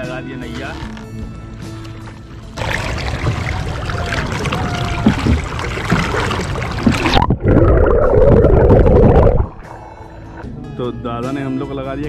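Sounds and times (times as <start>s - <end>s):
water splashing and sloshing: 0.5s - 10.5s
muffled underwater rumble with bubbling: 2.5s - 10.5s.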